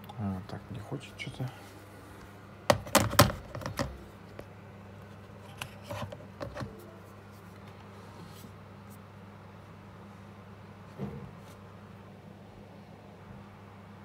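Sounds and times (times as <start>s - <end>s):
steady low hum: 0.0s - 14.0s
smartphone and cable handling clicks: 2.7s - 4.5s, 5.4s - 6.8s.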